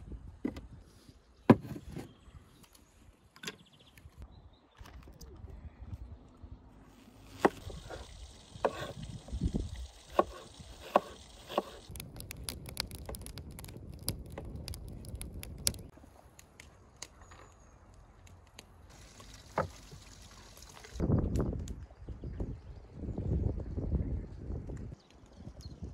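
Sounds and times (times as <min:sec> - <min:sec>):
knife chopping on wooden board: 0:10.1 - 0:11.8
wood fire crackling and popping: 0:10.8 - 0:15.9.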